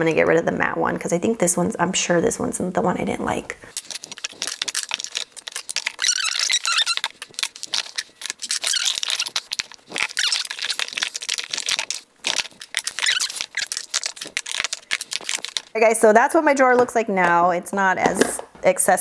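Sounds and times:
squeaky plastic rubbing: 0:03.7 - 0:15.8
plastic containers clicking and knocking: 0:18.0 - 0:18.6.

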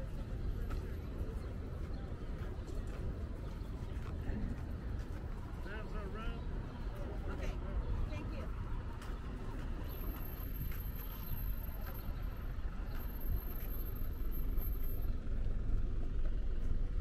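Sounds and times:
low rumble of traffic: 0:00.0 - 0:17.0
truck engine running: 0:10.2 - 0:17.0.

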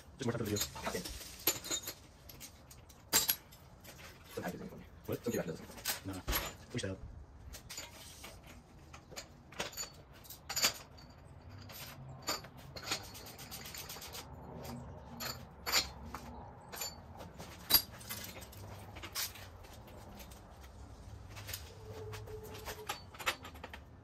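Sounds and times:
bike metal clinks and knocks: 0:00.2 - 0:04.5, 0:05.1 - 0:06.8, 0:07.4 - 0:24.0.

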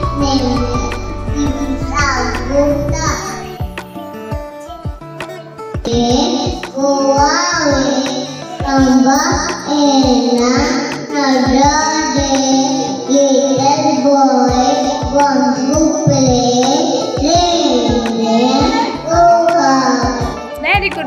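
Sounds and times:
background music with a beat: 0:00.0 - 0:13.8, 0:14.4 - 0:21.0
child singing into a microphone: 0:00.0 - 0:20.4.

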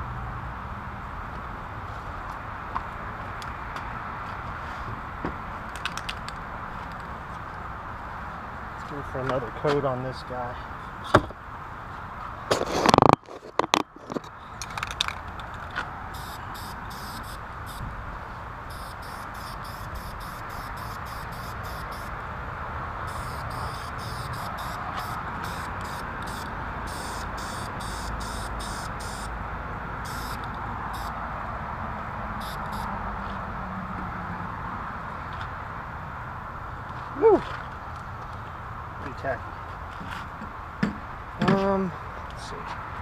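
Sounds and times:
steady background noise: 0:00.0 - 0:43.0
spray paint can hissing: 0:16.2 - 0:17.8, 0:18.7 - 0:22.1, 0:23.0 - 0:29.3, 0:30.0 - 0:31.2, 0:32.4 - 0:32.9.

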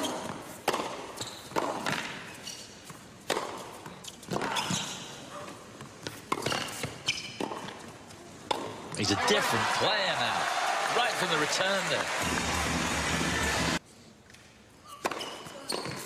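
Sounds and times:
ball bouncing on hard court: 0:00.0 - 0:02.2
tennis ball struck by rackets: 0:00.6 - 0:02.2.

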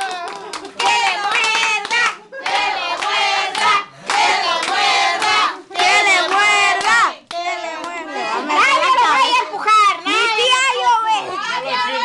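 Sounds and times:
hands clapping: 0:00.0 - 0:08.0
group chanting: 0:00.8 - 0:09.2.

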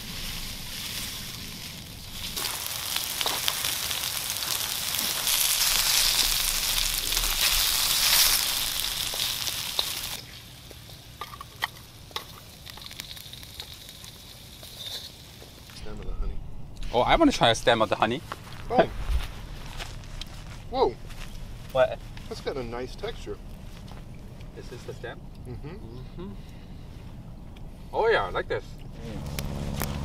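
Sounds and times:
mushrooms sizzling in oil: 0:00.0 - 0:15.8.

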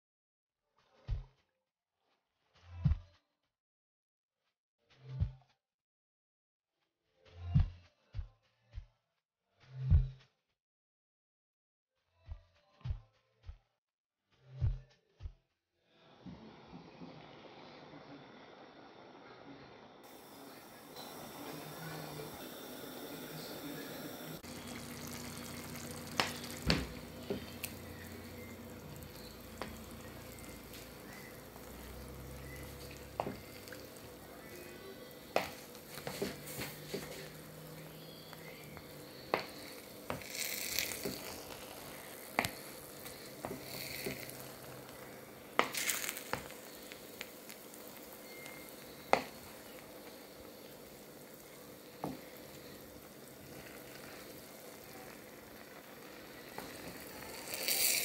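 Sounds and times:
pot sizzling: 0:20.0 - 0:58.0.

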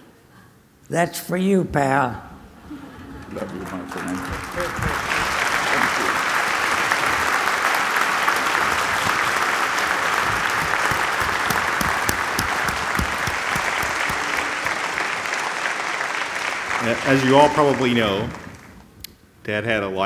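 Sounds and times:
audience applauding: 0:03.2 - 0:18.8.

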